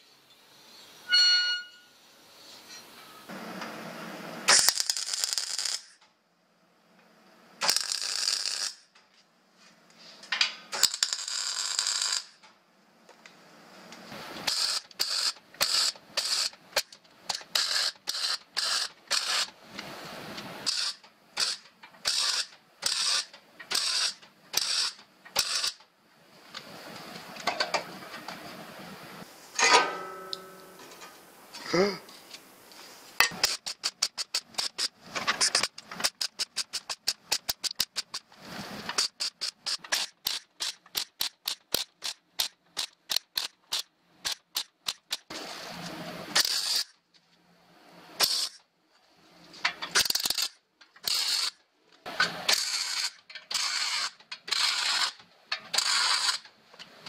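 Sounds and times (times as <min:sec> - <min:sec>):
metallic hammer blows: 0:01.1 - 0:01.9, 0:29.6 - 0:30.9
sheet steel clanking and scraping: 0:29.6 - 0:31.2.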